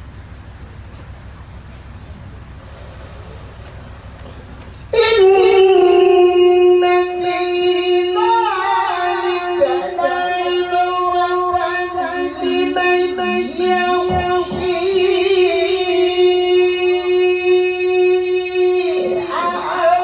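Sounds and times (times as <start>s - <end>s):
man chanting into microphone: 5.0s - 20.0s.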